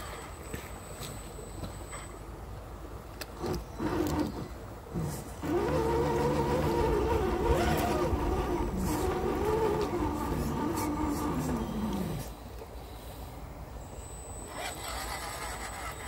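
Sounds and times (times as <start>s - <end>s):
electric motor whining: 3.8s - 12.4s, 13.9s - 16.0s.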